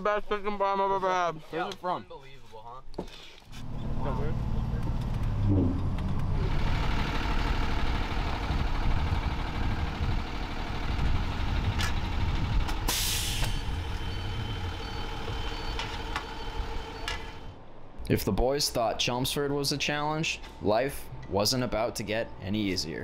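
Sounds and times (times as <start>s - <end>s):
bus engine idling: 3.5s - 17.7s
air brake hiss: 12.9s - 13.8s.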